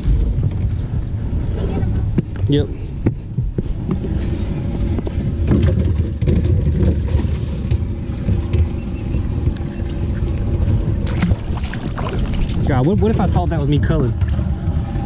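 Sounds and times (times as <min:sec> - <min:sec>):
wind rumbling on microphone: 0:00.0 - 0:15.0
water splashing: 0:09.5 - 0:15.0.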